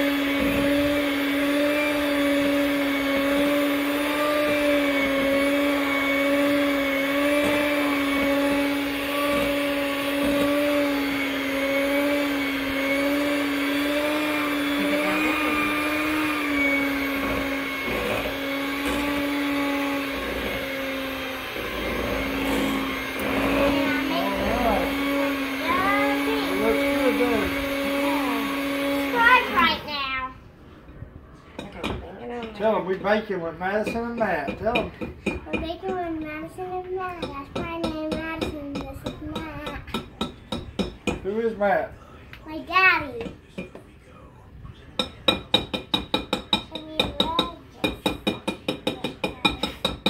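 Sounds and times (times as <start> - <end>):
electric hand mixer running: 0.0 - 30.0.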